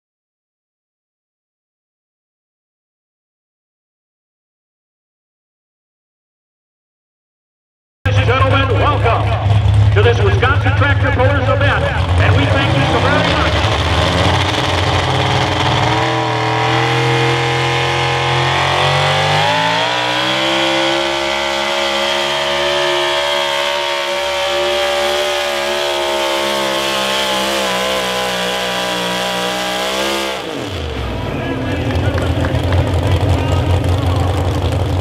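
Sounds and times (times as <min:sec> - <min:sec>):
truck engine at full throttle: 0:08.1 - 0:35.0.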